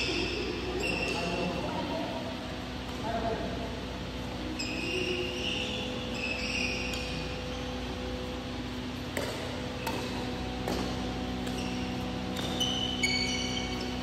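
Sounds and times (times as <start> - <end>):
steady low hum: 0.0 - 14.0
shoes squeaking on floor: 4.5 - 7.9, 9.7 - 14.0
racket hitting shuttlecock: 6.3 - 7.2, 8.6 - 14.0.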